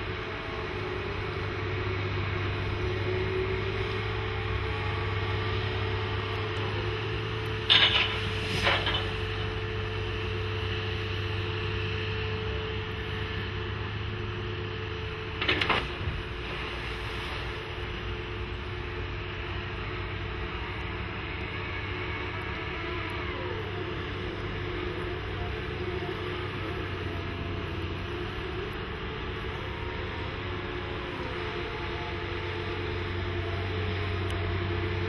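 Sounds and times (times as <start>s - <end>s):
diesel engine humming: 0.0s - 35.0s
short clatters: 7.6s - 9.3s.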